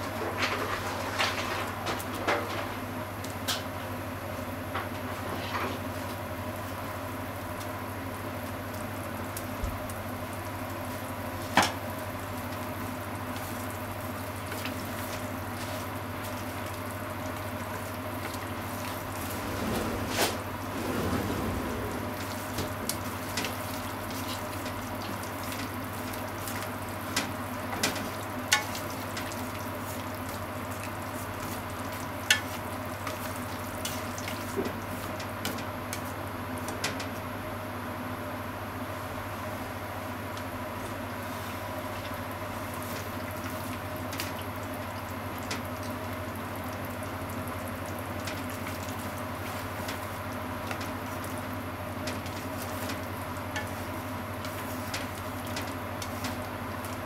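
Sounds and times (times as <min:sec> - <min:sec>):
meat bubbling and sizzling: 0:02.8 - 0:57.0
steady low hum: 0:18.8 - 0:24.2.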